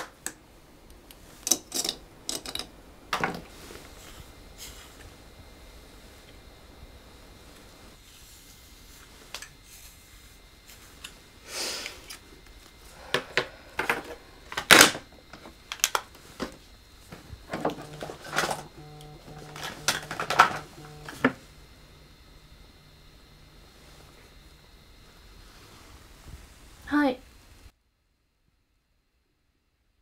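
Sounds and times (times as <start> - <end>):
low buzzing hum in bursts: 2.0 - 29.2
short hiss: 11.4 - 12.1.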